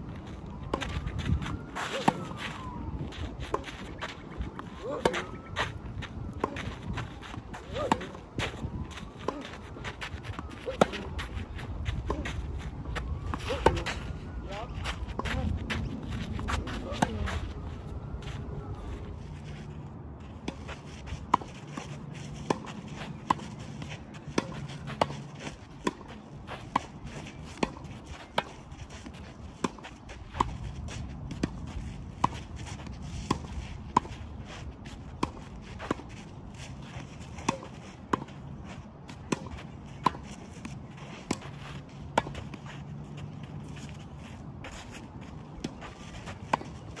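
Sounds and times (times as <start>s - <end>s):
tennis balls struck by racquets: 6.4s - 14.1s.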